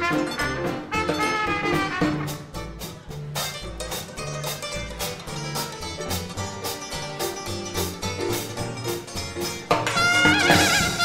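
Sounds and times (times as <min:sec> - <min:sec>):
brass horns with vibrato: 0:00.0 - 0:02.5, 0:09.9 - 0:11.0
jazz dance band playing: 0:00.0 - 0:11.0.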